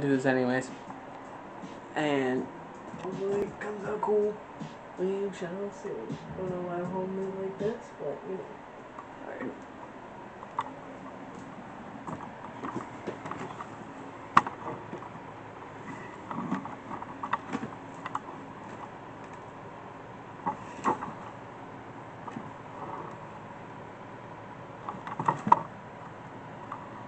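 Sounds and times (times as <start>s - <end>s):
room hum: 0.0s - 27.0s
phone handling clicks and rustles: 12.1s - 13.7s, 24.8s - 25.7s.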